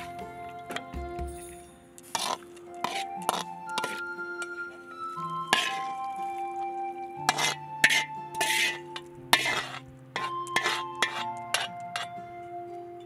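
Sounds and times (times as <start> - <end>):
soft background music: 0.0 - 13.0
ladle clinking on cooking pot: 9.4 - 12.2.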